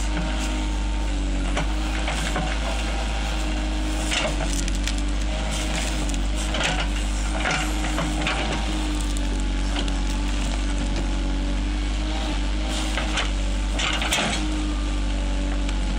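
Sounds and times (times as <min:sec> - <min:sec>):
diesel engine running: 0:00.0 - 0:15.9
roots and branches cracking: 0:01.6 - 0:11.6.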